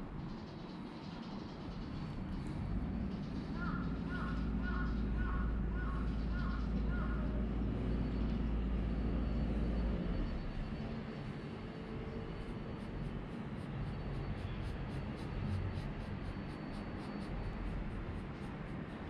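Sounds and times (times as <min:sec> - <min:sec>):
low rumble: 0:01.4 - 0:19.0
crow cawing: 0:03.6 - 0:07.4.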